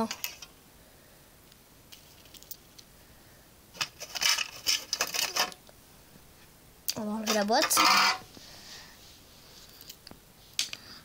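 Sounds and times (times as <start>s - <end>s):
plastic box clicking and rattling: 3.8s - 5.6s.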